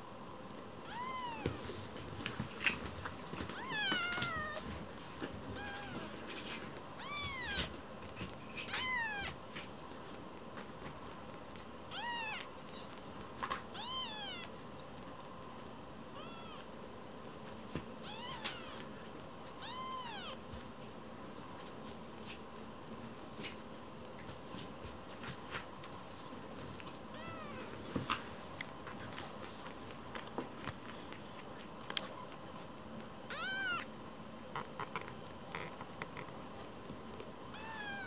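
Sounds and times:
kittens mewing: 3.5s - 4.8s, 5.4s - 7.8s, 8.7s - 9.4s, 11.9s - 12.9s, 33.3s - 33.9s, 37.5s - 38.0s.

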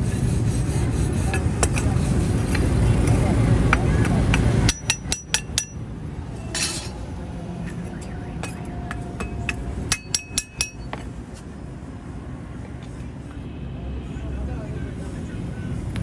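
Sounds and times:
hammer tapping metal: 3.7s - 5.9s, 8.4s - 11.1s.

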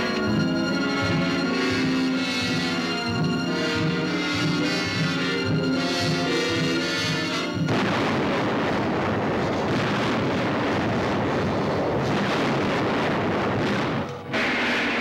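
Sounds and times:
orchestral music: 0.0s - 9.7s
explosion: 7.6s - 15.0s
blast noise and falling rock: 7.7s - 15.0s.

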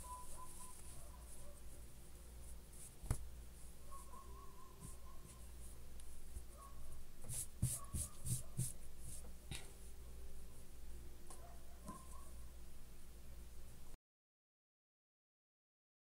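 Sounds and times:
brushing strokes on cloth: 0.0s - 6.6s, 7.2s - 9.3s
low steady hum: 0.0s - 14.0s
fabric rubbed by hand: 7.3s - 9.2s.

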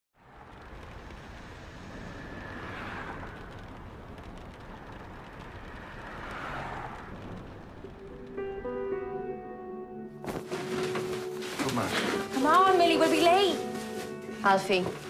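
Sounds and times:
vehicles passing: 0.2s - 9.3s
distant traffic: 0.2s - 9.9s.

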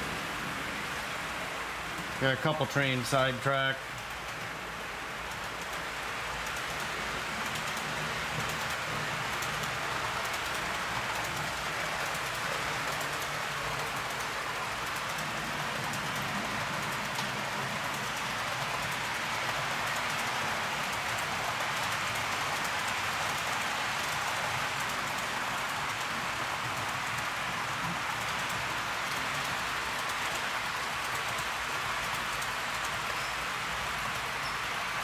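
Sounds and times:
model train wheels rolling on rails: 0.0s - 35.0s.

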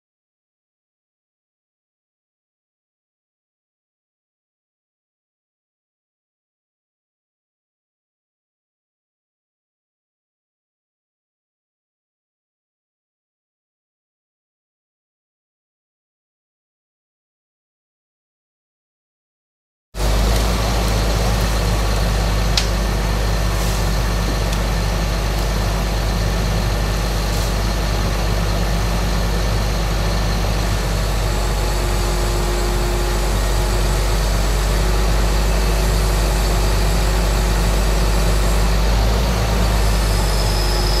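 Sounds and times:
truck engine idling: 20.0s - 41.0s.

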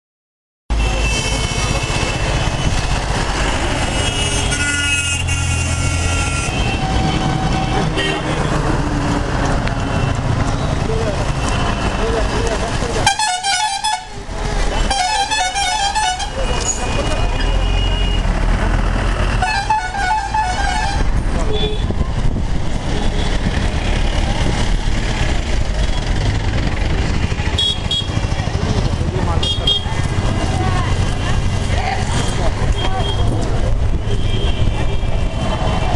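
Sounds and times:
engine and road noise: 0.7s - 35.9s
street noise: 0.7s - 35.9s
trucks passing close by: 0.8s - 35.9s
motorcycle engines running: 21.4s - 35.9s.

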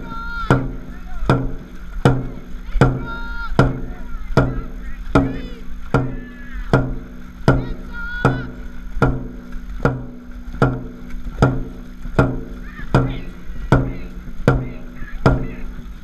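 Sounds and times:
crew shouting calls: 0.0s - 8.8s, 12.5s - 16.0s
drum booming beats: 0.0s - 16.0s.

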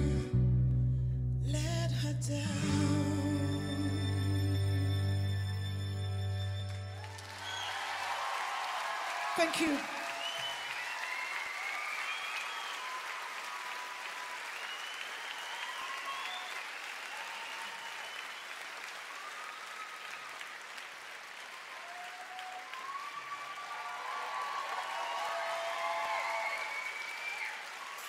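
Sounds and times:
crowd applauding and cheering: 2.6s - 28.0s
shouts and whoops: 7.0s - 18.3s, 21.5s - 28.0s.

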